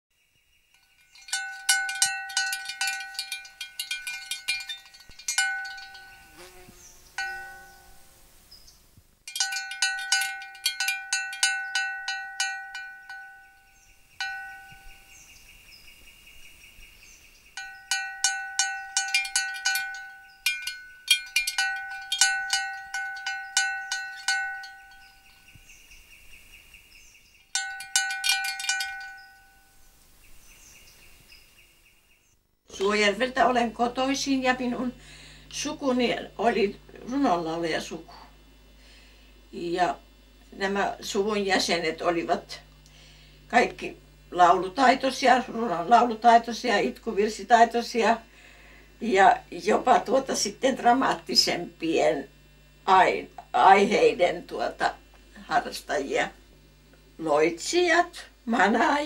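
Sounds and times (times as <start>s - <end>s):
small bell ringing rapidly: 0.7s - 6.6s, 7.2s - 8.1s, 9.3s - 15.3s, 17.6s - 25.8s, 27.5s - 29.8s.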